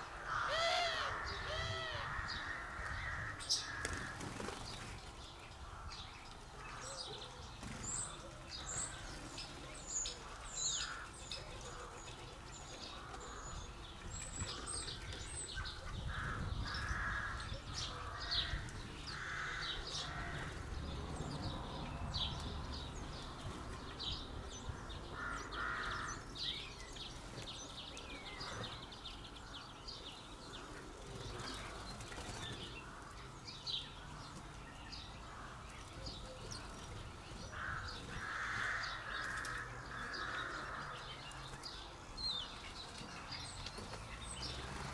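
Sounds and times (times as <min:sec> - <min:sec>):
harsh rasping bird calls: 0:24.6 - 0:26.7, 0:35.1 - 0:41.9.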